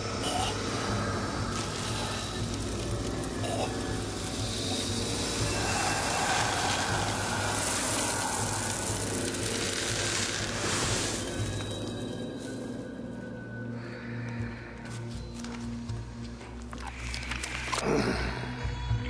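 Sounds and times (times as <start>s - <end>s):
crackling sizzling effect: 0.0s - 12.8s
low steady drone: 0.0s - 19.0s.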